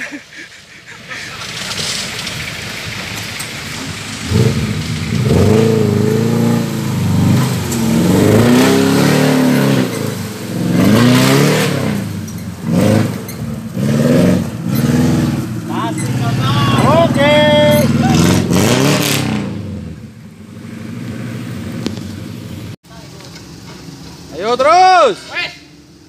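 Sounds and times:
car engine revving hard: 0:03.9 - 0:20.0.

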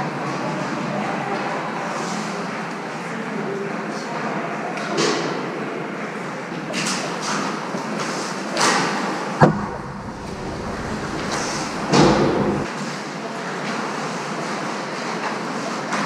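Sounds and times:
arena hum: 0:09.4 - 0:12.7
sharp knock: 0:09.4 - 0:12.7.

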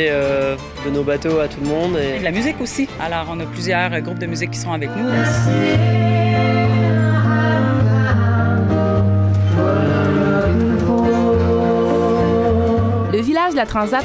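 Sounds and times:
acoustic guitar: 0:00.0 - 0:14.0
woman singing: 0:05.1 - 0:09.0, 0:10.0 - 0:14.0.

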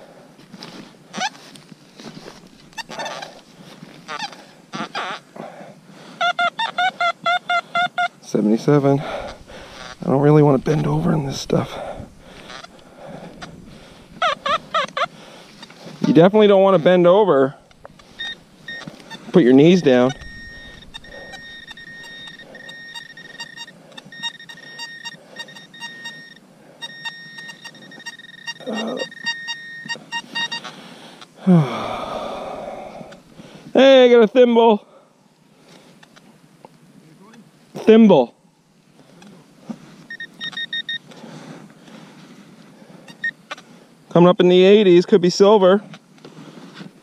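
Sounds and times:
metal detector chirps: 0:02.2 - 0:03.5, 0:06.2 - 0:30.8, 0:40.0 - 0:41.2, 0:43.0 - 0:43.6
metal detector rapid beeps: 0:06.2 - 0:30.8, 0:40.0 - 0:41.2, 0:43.0 - 0:43.6.

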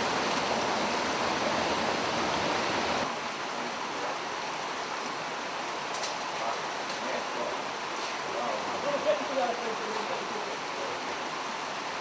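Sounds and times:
river flowing: 0:00.0 - 0:12.0.

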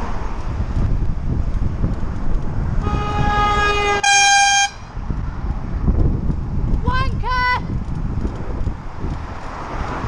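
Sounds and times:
traffic rumble: 0:00.0 - 0:10.0
wind noise on microphone: 0:00.0 - 0:10.0
horn blasts: 0:02.8 - 0:04.9.

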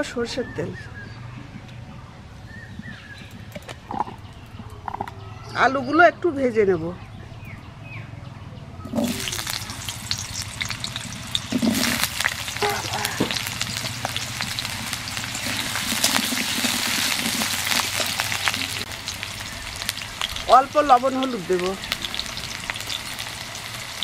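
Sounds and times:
potatoes sizzling in hot oil: 0:08.9 - 0:24.0
spatula stirring in pan: 0:10.1 - 0:18.9.

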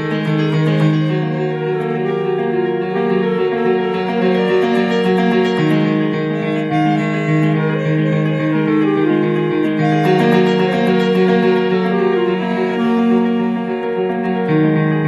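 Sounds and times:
guitar: 0:00.0 - 0:14.8
keyboard playing sustained chords: 0:00.0 - 0:15.0.

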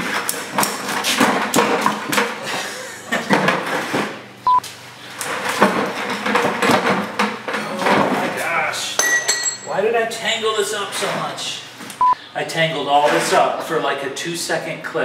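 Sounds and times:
metal hooks and buckles clinking: 0:09.0 - 0:09.8.

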